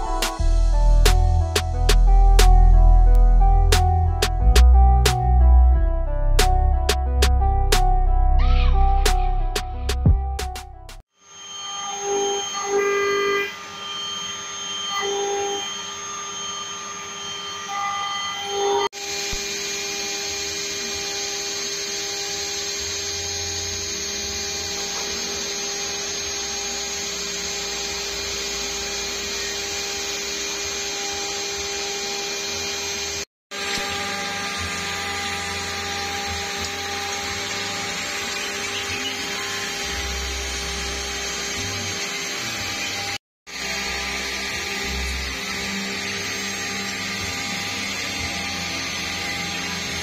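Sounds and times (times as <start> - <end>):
milling machine running: 11.2 - 50.0.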